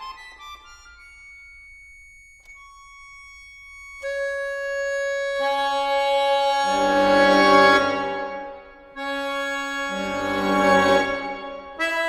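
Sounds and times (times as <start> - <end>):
accordion sustained notes: 0.0 - 12.0.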